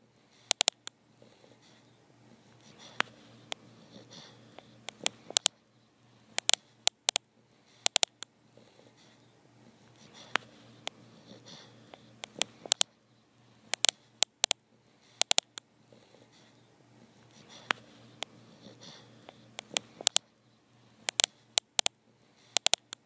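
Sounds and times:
sharp clicks and crackles: 0:00.5 - 0:01.0, 0:04.9 - 0:05.6, 0:06.4 - 0:07.2, 0:07.8 - 0:08.3, 0:12.2 - 0:12.9, 0:13.7 - 0:14.6, 0:15.2 - 0:15.7, 0:19.3 - 0:20.3, 0:21.1 - 0:22.0, 0:22.6 - 0:23.0
dog snoring: 0:01.2 - 0:01.8, 0:02.6 - 0:05.4, 0:08.6 - 0:12.7, 0:15.9 - 0:16.6, 0:17.3 - 0:20.2.

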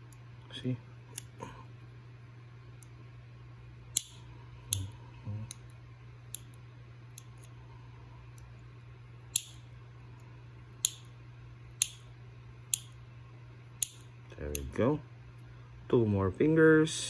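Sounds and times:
nail clipper snipping: 0:01.1 - 0:01.3, 0:03.9 - 0:05.6, 0:09.3 - 0:09.6, 0:11.8 - 0:12.1, 0:12.7 - 0:13.0, 0:13.8 - 0:14.7.

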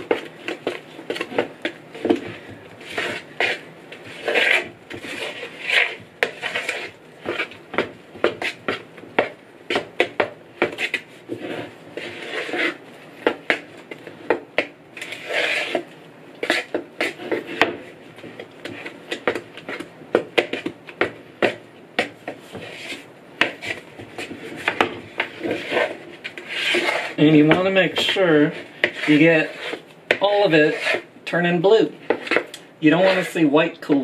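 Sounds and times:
spoon scraping bowl: 0:00.0 - 0:07.6, 0:24.5 - 0:31.1, 0:32.1 - 0:33.5.

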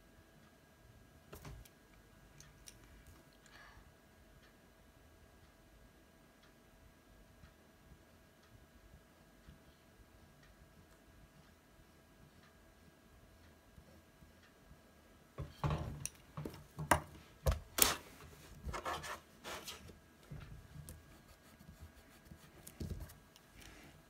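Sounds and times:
rubbing and scraping on paper: 0:17.8 - 0:19.9.

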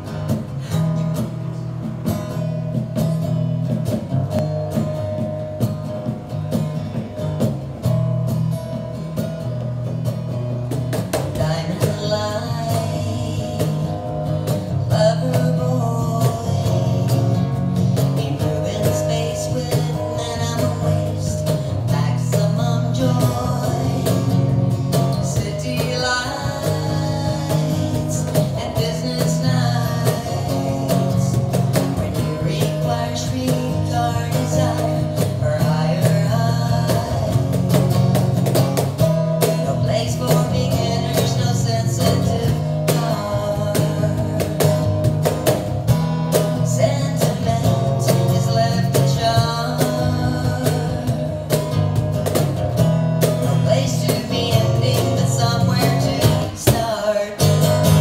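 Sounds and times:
acoustic guitar: 0:00.0 - 0:58.0
cajon drumming: 0:00.0 - 0:58.0
woman singing: 0:11.0 - 0:52.5, 0:53.2 - 0:58.0.

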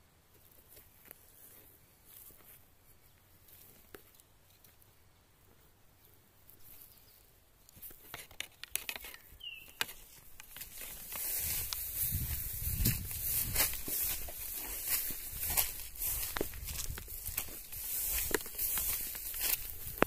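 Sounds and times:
footsteps rustling through grass: 0:00.3 - 0:04.9, 0:09.4 - 0:20.0.

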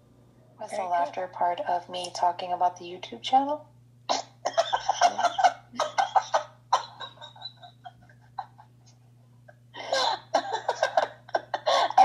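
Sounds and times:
woman laughing hysterically: 0:04.5 - 0:08.7, 0:09.8 - 0:12.0.

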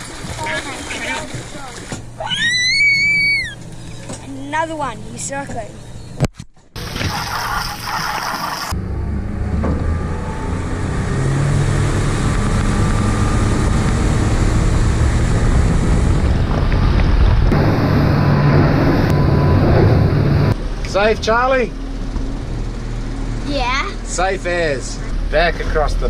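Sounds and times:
water rushing: 0:00.0 - 0:04.1, 0:06.8 - 0:08.8
motorboat engine running: 0:00.0 - 0:26.0
wind: 0:00.0 - 0:26.0.

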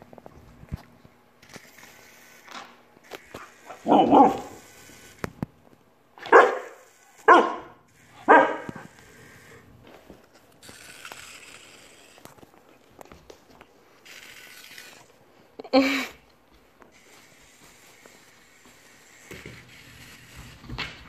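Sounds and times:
puppy barking: 0:03.8 - 0:04.5, 0:06.2 - 0:08.8.

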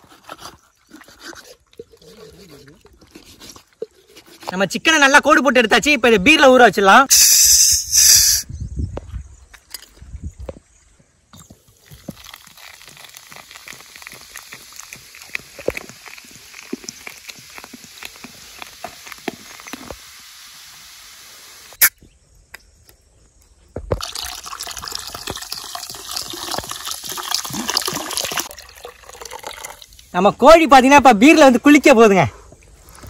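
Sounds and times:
beer pouring and fizzing: 0:11.4 - 0:21.1, 0:23.9 - 0:30.2.

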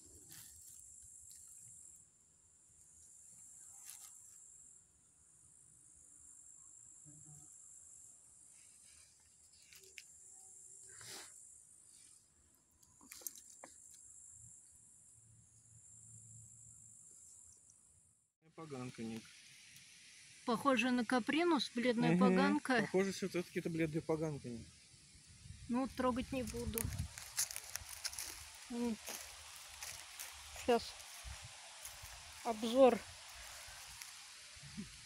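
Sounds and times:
insects chirring: 0:00.0 - 0:35.0.

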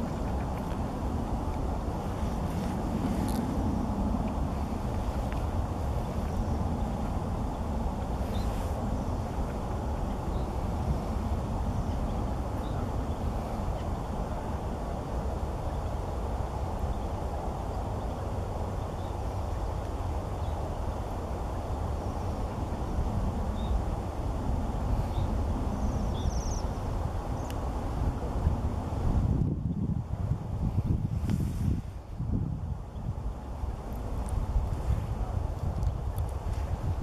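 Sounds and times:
distant traffic: 0:00.0 - 0:29.4
wind: 0:00.0 - 0:37.0.

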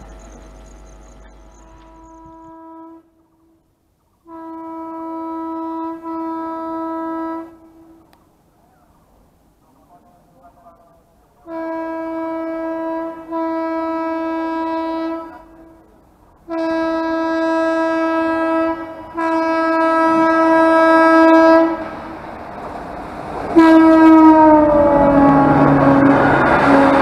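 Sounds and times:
rumble of passing train: 0:00.0 - 0:27.0
locomotive horn blasts: 0:01.5 - 0:03.2, 0:04.3 - 0:08.1, 0:11.4 - 0:15.9, 0:16.5 - 0:22.0, 0:23.5 - 0:27.0.

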